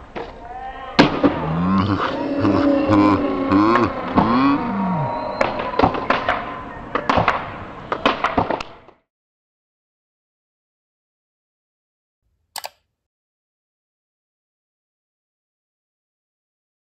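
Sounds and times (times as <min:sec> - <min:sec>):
onlookers whooping and yelling: 0:00.4 - 0:07.3
skateboard clacks and knocks: 0:05.4 - 0:09.0.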